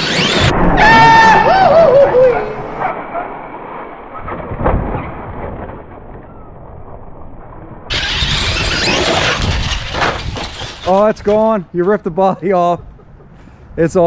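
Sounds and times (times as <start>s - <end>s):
rc truck motor whine: 0.0s - 0.5s, 7.9s - 10.8s.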